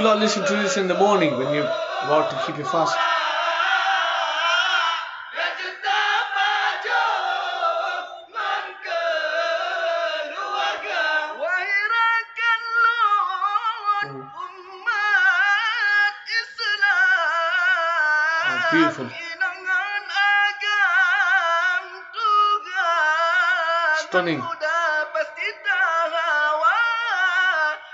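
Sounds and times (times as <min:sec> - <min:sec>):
man singing into a microphone: 0:00.0 - 0:05.0, 0:10.8 - 0:27.9
men chanting together: 0:00.0 - 0:12.4, 0:16.9 - 0:19.5.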